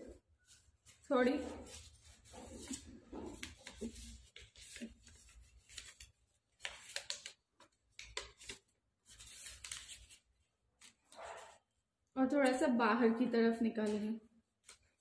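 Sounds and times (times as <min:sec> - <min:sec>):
paper rustling and crackling: 0:00.1 - 0:11.6.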